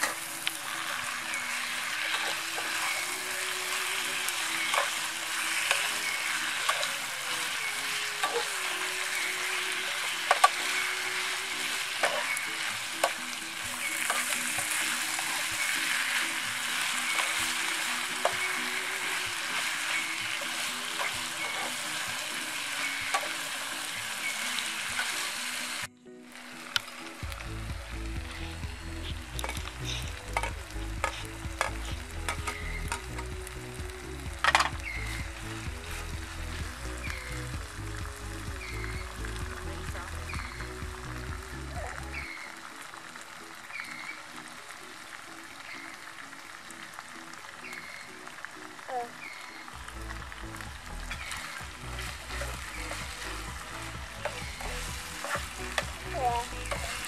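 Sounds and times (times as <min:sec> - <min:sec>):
spatula scraping a pan: 0:00.0 - 0:03.3, 0:09.9 - 0:13.2, 0:54.2 - 0:56.0
meat sizzling in oil: 0:00.0 - 0:57.0.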